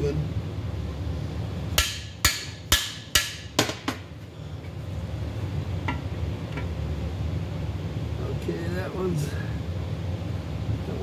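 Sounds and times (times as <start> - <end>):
hammer striking metal bar: 1.8 - 4.0.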